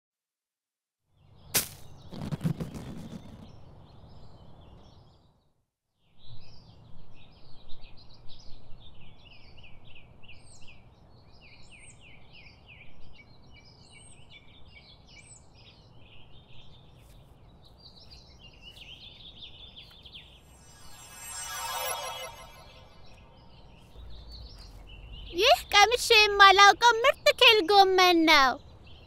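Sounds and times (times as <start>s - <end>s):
birds chirping and singing: 17.6s - 27.4s
low outdoor rumble: 22.9s - 26.9s.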